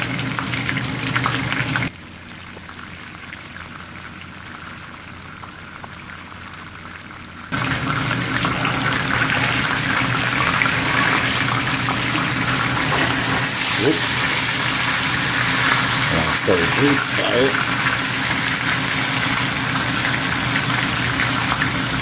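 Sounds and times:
meat sizzling in a skillet: 7.6s - 22.0s.

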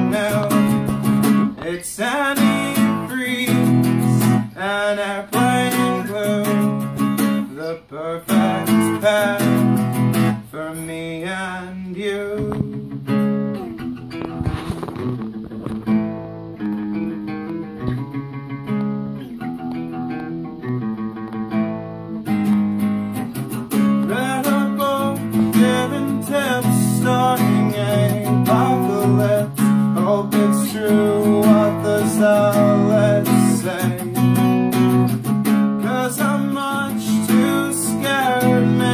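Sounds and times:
man singing: 0.0s - 13.2s, 24.0s - 35.0s, 35.7s - 38.9s
acoustic guitar strumming: 0.0s - 38.9s.

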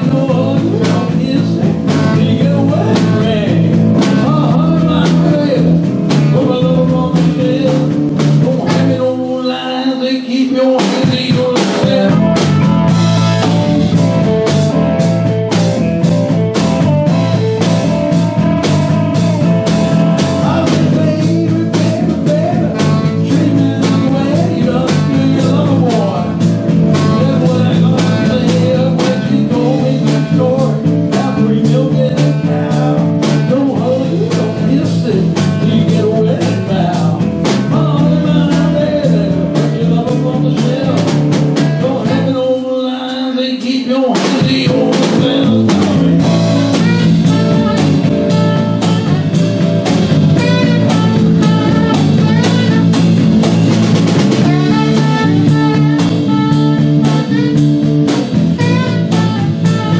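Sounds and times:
rock and roll band playing: 0.0s - 59.9s
saxophone: 45.2s - 59.9s.

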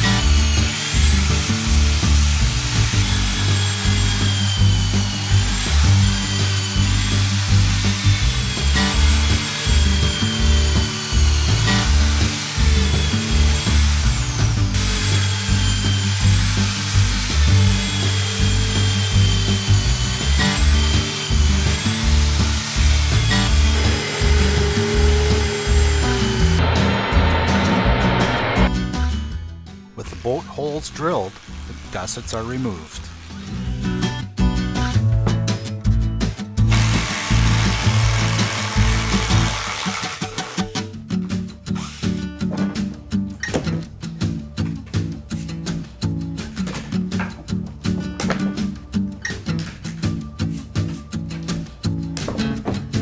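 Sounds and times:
electric drill boring wood: 0.0s - 28.6s, 30.0s - 33.8s, 36.7s - 40.8s
music with bass beat: 0.0s - 29.8s, 33.6s - 39.5s.

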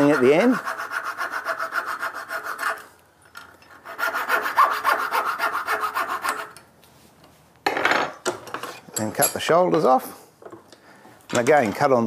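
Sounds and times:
coping saw cutting wood: 0.0s - 2.8s, 3.9s - 6.5s.

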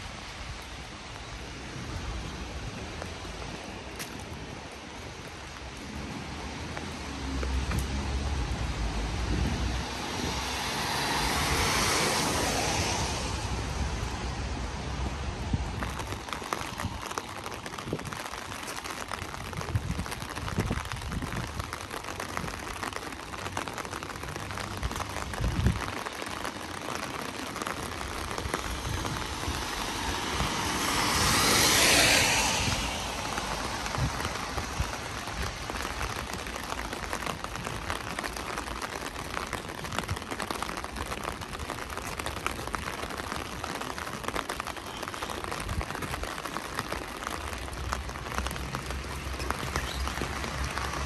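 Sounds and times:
rain pattering on street: 0.0s - 51.0s
tyre hiss on wet road: 0.0s - 51.0s.

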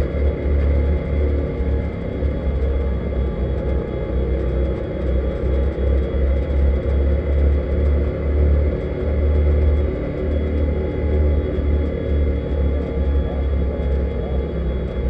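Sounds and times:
buggy engine rumbling under load: 0.0s - 15.0s.

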